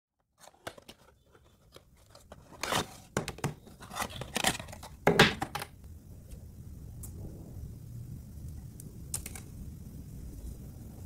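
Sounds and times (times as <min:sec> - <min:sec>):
cardboard box scraping and rustling: 0:00.4 - 0:04.9.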